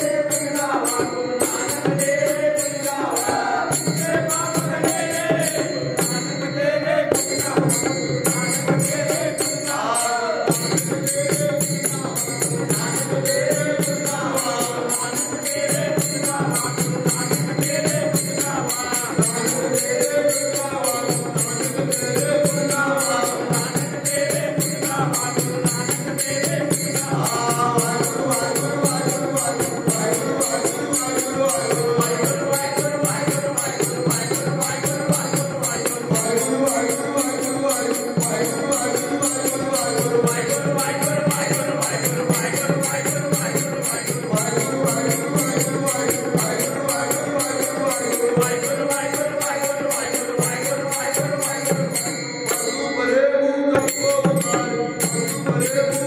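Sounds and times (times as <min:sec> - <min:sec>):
devotional hymns sung: 0:00.0 - 0:56.0
jingling percussion beat: 0:00.0 - 0:56.0.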